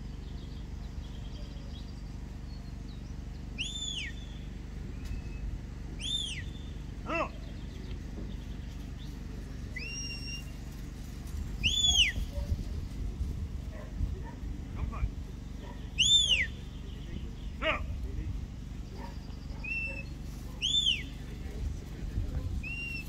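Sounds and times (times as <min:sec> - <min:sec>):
shepherd's whistles: 0:03.6 - 0:04.3, 0:06.0 - 0:06.6, 0:09.8 - 0:10.6, 0:11.6 - 0:12.5, 0:16.0 - 0:16.6, 0:19.6 - 0:21.1, 0:22.6 - 0:23.0.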